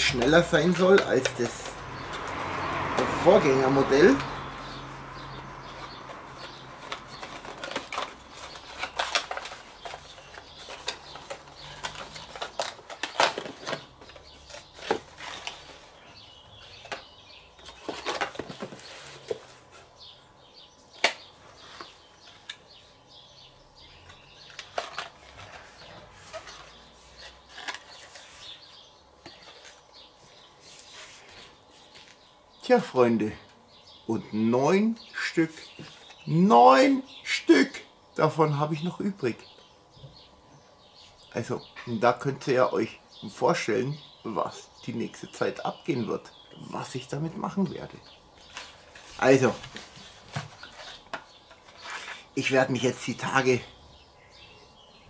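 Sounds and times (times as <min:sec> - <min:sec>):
paper and cardboard rustling: 0:05.6 - 0:17.0, 0:17.6 - 0:20.0, 0:24.4 - 0:32.2, 0:48.4 - 0:52.5.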